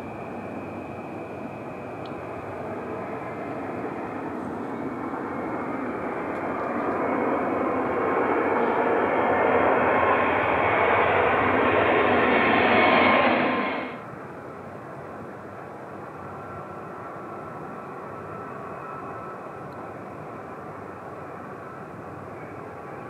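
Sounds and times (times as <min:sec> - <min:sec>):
jet engines rushing: 0:00.0 - 0:14.2.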